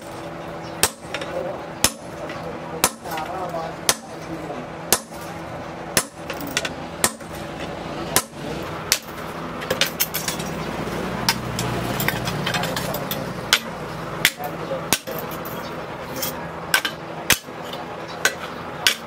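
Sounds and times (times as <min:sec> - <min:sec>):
steady low hum: 0:00.0 - 0:19.0
hammer striking steel bar: 0:04.9 - 0:05.2, 0:06.0 - 0:07.3, 0:08.2 - 0:09.2, 0:16.7 - 0:17.5, 0:18.2 - 0:19.0.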